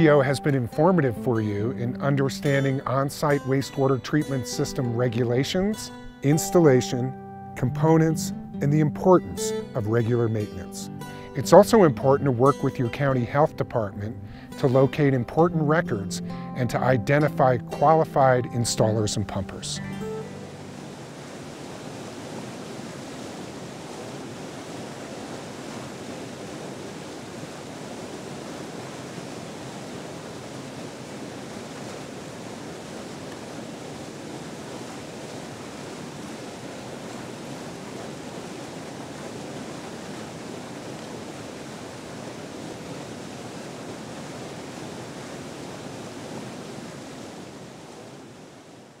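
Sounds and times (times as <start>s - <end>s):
river rapids rushing: 16.2s - 48.8s.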